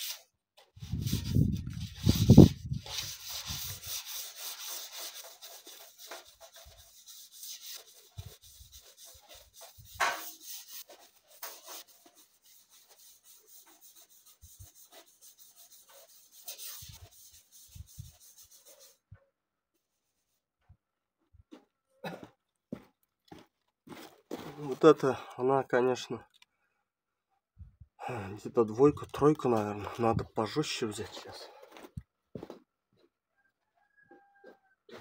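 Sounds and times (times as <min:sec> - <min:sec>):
sandpaper scratching on metal pipe: 0:00.0 - 0:19.0.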